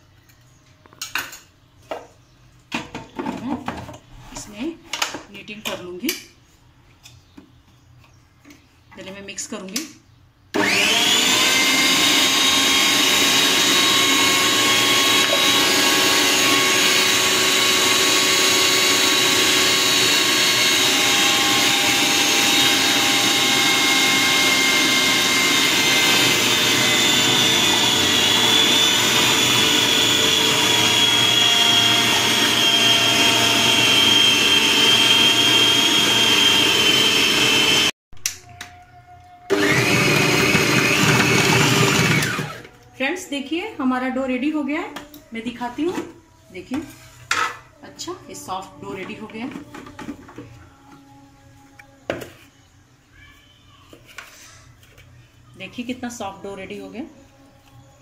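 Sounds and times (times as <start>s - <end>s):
food processor motor whining: 10.6s - 38.0s, 39.5s - 42.7s.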